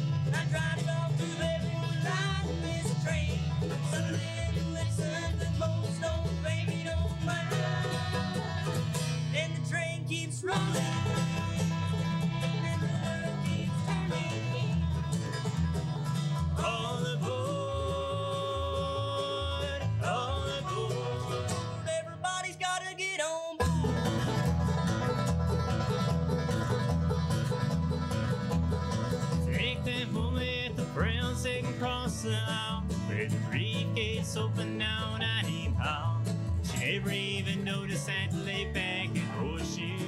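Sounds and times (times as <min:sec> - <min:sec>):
upright bass: 0:00.0 - 0:23.0, 0:23.6 - 0:40.0
acoustic guitar: 0:00.0 - 0:40.0
banjo: 0:00.0 - 0:40.0
mandolin: 0:00.0 - 0:40.0.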